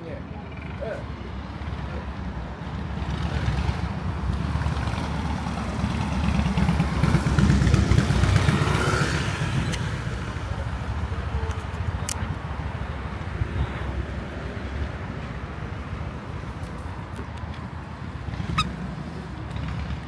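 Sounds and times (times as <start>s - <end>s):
vehicle passing by: 0.5s - 10.9s, 17.6s - 20.0s.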